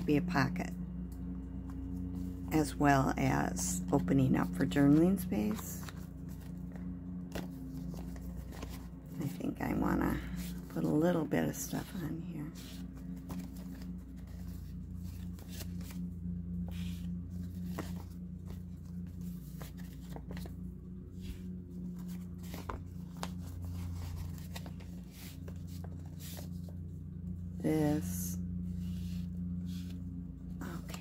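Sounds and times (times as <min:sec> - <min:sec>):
steady low hum: 0:00.0 - 0:31.0
paper rustling and crinkling: 0:03.9 - 0:27.1.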